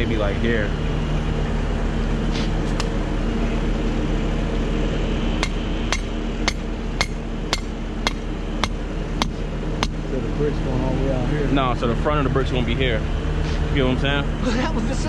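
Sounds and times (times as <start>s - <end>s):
machine engine idling: 0.0s - 15.0s
hammer strikes: 5.4s - 10.0s.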